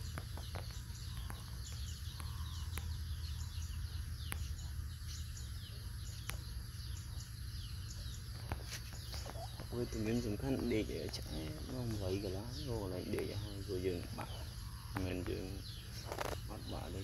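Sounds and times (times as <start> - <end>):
small birds chirping: 0.0 - 17.0
faint sharp clicks: 0.1 - 3.0, 4.2 - 4.5, 6.2 - 6.5.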